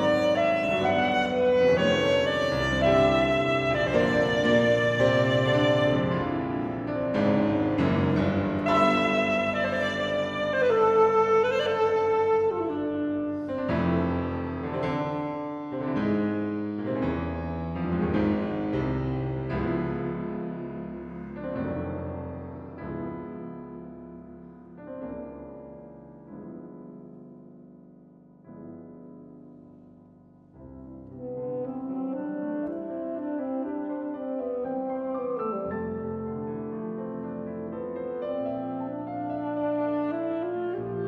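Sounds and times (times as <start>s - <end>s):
alto saxophone: 0.0s - 14.8s, 31.0s - 37.5s, 38.3s - 41.0s
piano playing chords: 0.0s - 41.0s.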